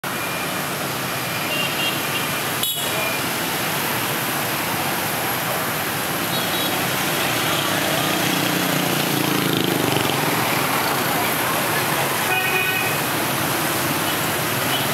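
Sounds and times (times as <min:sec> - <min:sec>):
scooters and motorbikes passing: 0:06.7 - 0:12.3
bus engine: 0:06.8 - 0:12.4.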